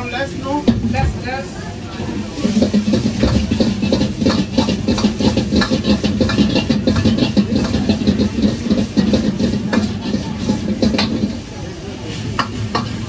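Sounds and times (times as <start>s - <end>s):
low kitchen hum: 0.0s - 13.0s
metal ladle scraping a wok: 2.0s - 13.0s.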